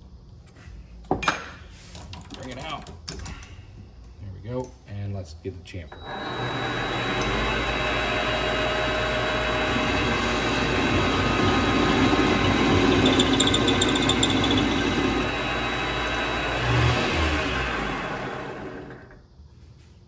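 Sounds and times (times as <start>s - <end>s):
lathe running: 6.0s - 19.2s
lathe tool cutting metal: 6.0s - 19.2s
high squeal: 10.6s - 15.4s.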